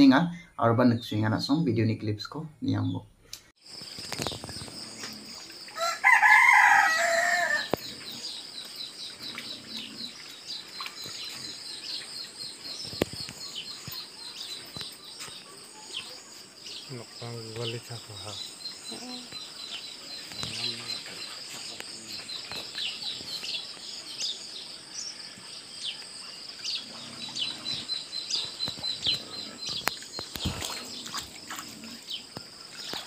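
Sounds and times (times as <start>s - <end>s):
rooster crowing: 5.7s - 7.8s.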